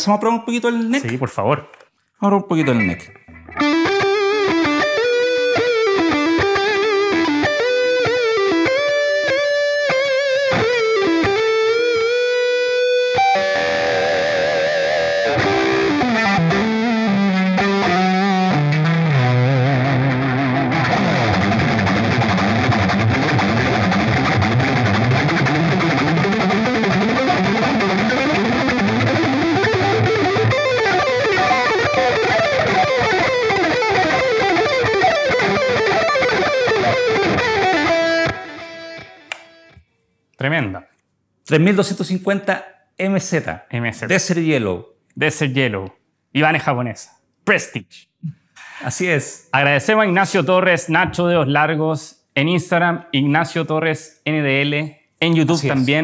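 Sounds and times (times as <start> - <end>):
distorted electric guitar lead: 2.6 - 39.8.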